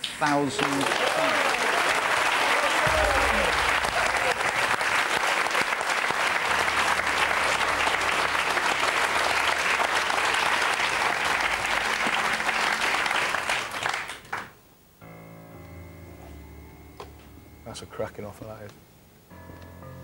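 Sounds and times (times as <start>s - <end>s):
studio audience applauding: 0.0s - 14.6s
quiet music with held notes: 6.1s - 13.1s, 15.0s - 20.0s.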